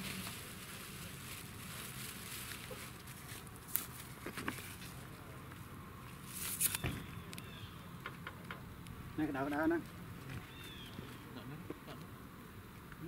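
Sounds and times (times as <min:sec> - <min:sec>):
faint outdoor hiss: 0:00.0 - 0:13.0.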